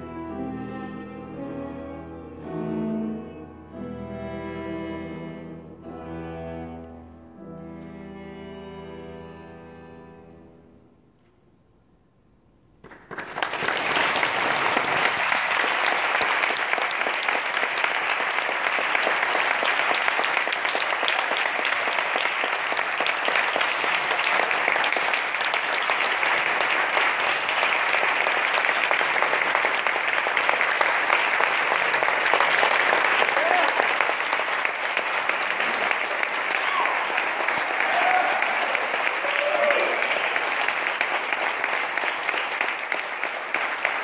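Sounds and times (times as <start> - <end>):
audience applauding: 12.8 - 44.0.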